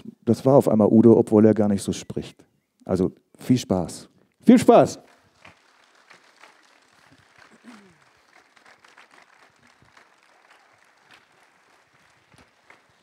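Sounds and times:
faint scattered applause: 4.7 - 13.0.

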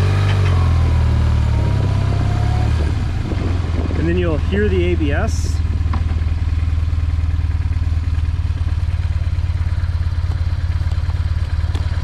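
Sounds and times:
motorcycle engine idling: 2.8 - 12.0.

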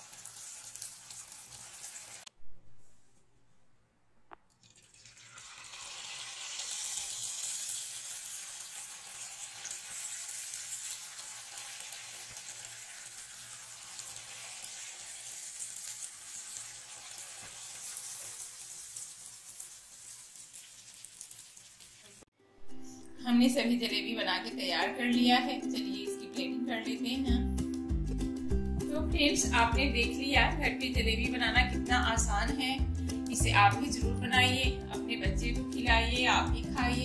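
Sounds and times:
batter sizzling in hot oil: 0.0 - 2.3, 4.7 - 22.3.

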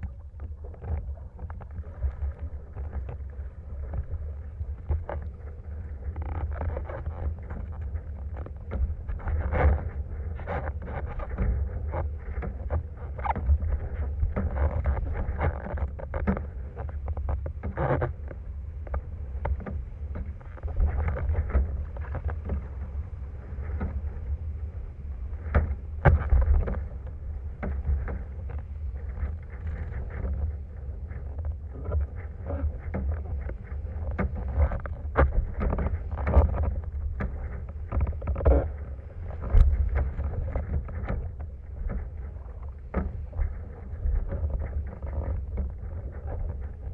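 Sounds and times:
water splashes: 0.0 - 46.9
wind rumbling on microphone: 0.0 - 46.9
knocks from rig and board: 25.4 - 26.9.

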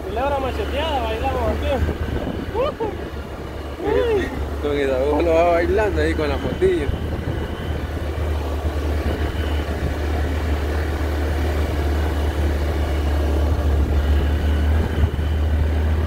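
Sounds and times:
low rumble: 0.0 - 16.0.

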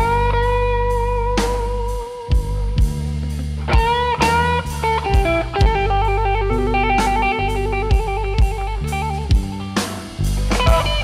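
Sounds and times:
bass and drums: 0.0 - 11.0
electric guitar solo: 0.0 - 11.0
cymbal crashes: 4.3 - 10.6.

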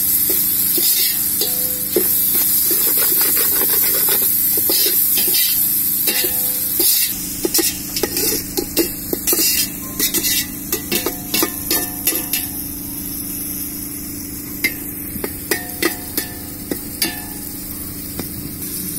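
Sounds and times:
vegetables sizzling in hot oil: 0.0 - 18.9
metal spatula scraping pot: 0.7 - 12.5.

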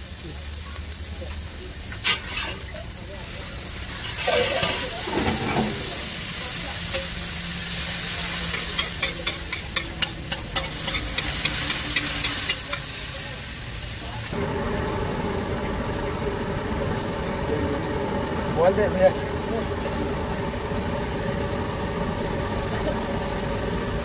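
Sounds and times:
gravy sizzling on iron griddle: 0.0 - 24.0
metal spatula scraping griddle: 1.9 - 2.9, 3.9 - 6.2, 8.1 - 13.0.

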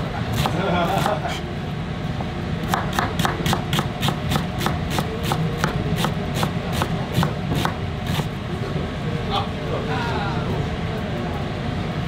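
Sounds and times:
steady low hum: 0.0 - 12.0
knife chopping onion on board: 0.3 - 1.2, 2.6 - 8.3.

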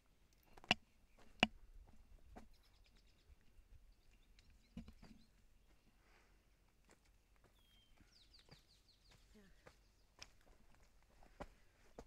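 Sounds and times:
faint bird chirps: 2.4 - 5.8, 7.5 - 10.1.

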